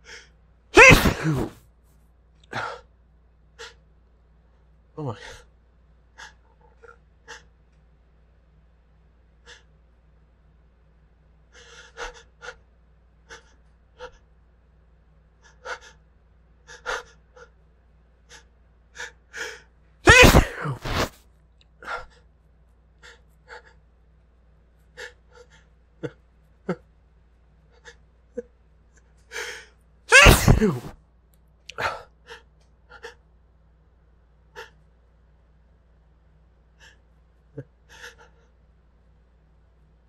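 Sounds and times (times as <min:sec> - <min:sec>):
man sneezing loudly: 0:00.8 - 0:01.6, 0:20.1 - 0:21.1, 0:29.4 - 0:31.0.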